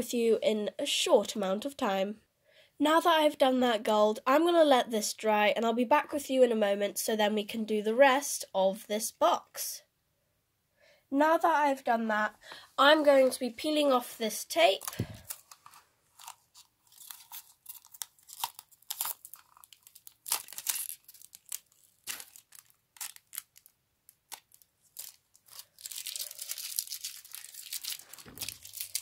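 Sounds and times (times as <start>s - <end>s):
tape peeling crackles and rasp: 14.8s - 29.0s.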